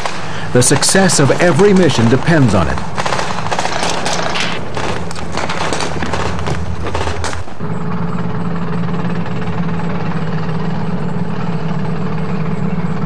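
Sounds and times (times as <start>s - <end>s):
rapid gunfire: 0.0s - 8.0s
armoured vehicle engine droning: 0.0s - 13.0s.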